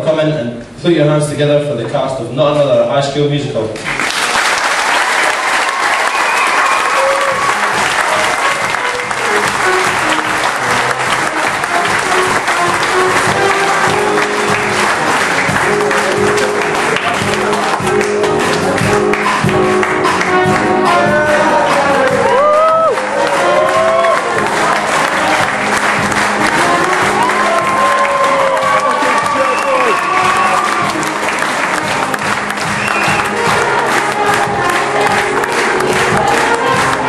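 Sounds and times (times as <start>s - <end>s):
music playing: 0.0s - 37.0s
audience applauding: 3.8s - 37.0s.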